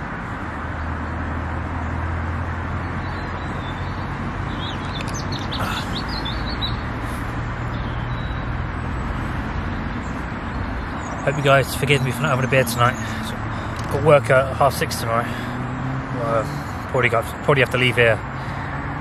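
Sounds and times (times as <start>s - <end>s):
road traffic rumble: 0.0s - 19.0s
small bird chirping: 2.8s - 8.6s.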